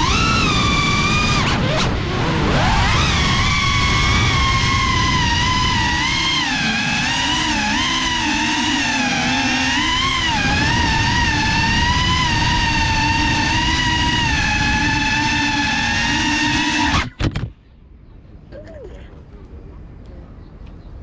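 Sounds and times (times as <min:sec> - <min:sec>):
drone motors whining: 0:00.0 - 0:17.5.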